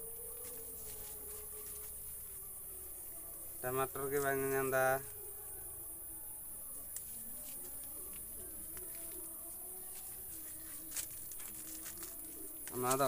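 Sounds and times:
plant leaves rustling: 0.0s - 2.5s, 6.9s - 13.0s.

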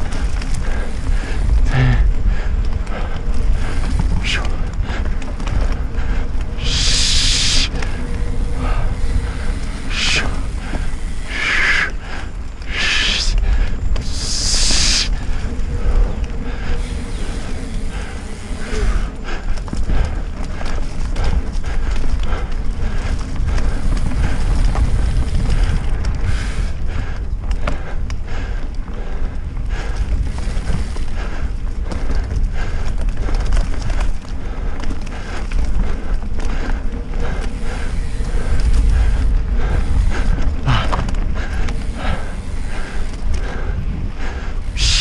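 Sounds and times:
bike clicks and rattles: 0.0s - 45.0s
bike tyre rumble: 0.0s - 45.0s
wind buffeting microphone: 0.0s - 45.0s.

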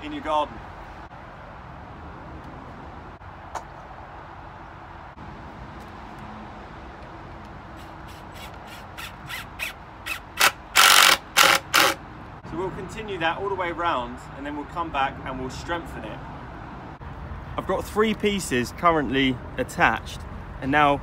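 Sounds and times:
cordless drill boring into wood: 7.8s - 12.0s.

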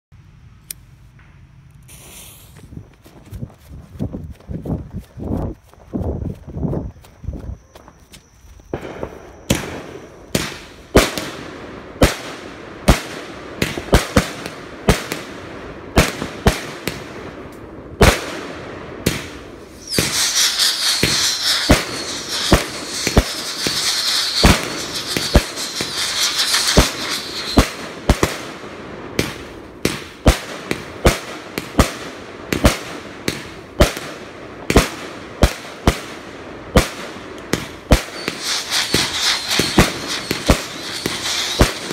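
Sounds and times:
fireworks dense hiss: 1.8s - 3.4s, 8.2s - 41.9s
fireworks bangs: 8.7s - 41.9s.

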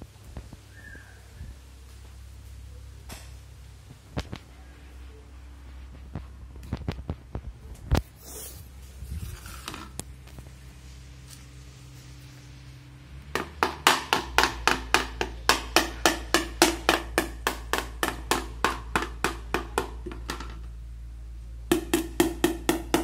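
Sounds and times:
tapping on plastic food bowl: 13.4s - 20.6s.

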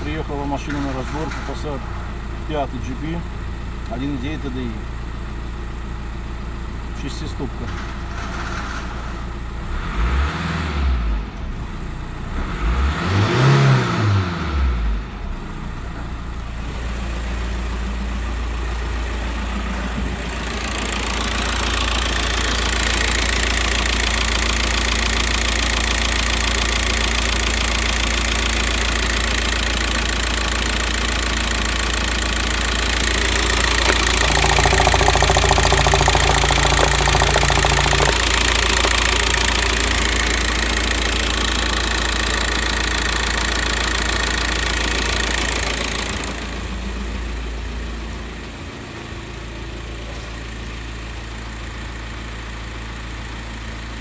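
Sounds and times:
diesel engine revving and idling: 9.5s - 15.6s, 30.4s - 46.6s.

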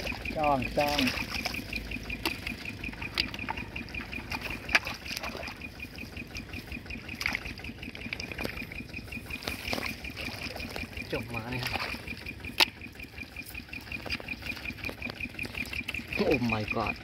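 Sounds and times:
hands sloshing in muddy water: 0.0s - 17.0s
high-pitched ticking: 0.0s - 17.0s.

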